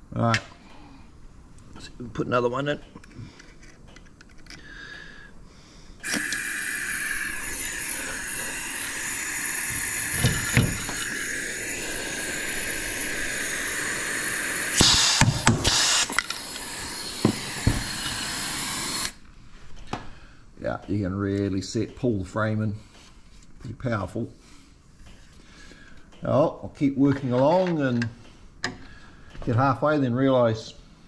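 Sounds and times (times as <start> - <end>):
air rivet gun hissing: 6.0 - 19.2.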